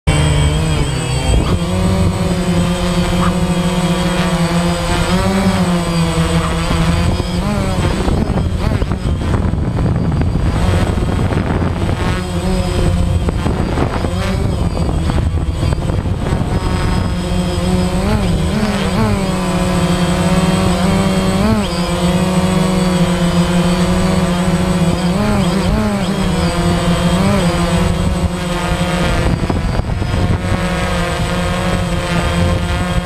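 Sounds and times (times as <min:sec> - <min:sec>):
drone propellers buzzing: 0:00.0 - 0:33.0.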